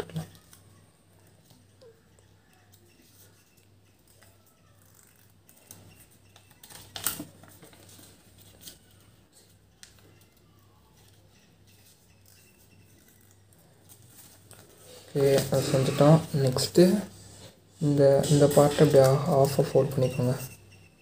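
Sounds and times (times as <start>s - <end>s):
paper rustling and crinkling: 6.6s - 10.3s, 13.8s - 16.7s.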